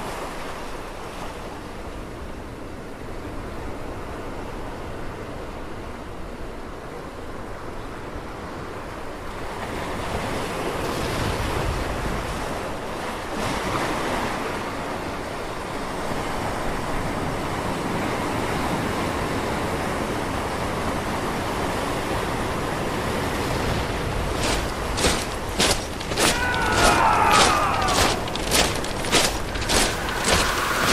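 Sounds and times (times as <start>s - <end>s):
ocean waves washing: 20.7s - 30.9s.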